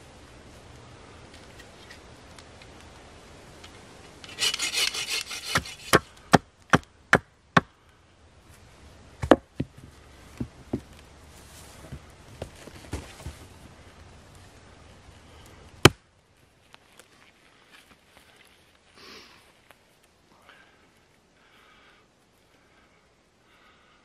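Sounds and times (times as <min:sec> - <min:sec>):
blade scraping wood: 0:04.2 - 0:06.0
blade chopping wooden stake: 0:04.3 - 0:07.7, 0:09.2 - 0:09.7, 0:15.8 - 0:16.0.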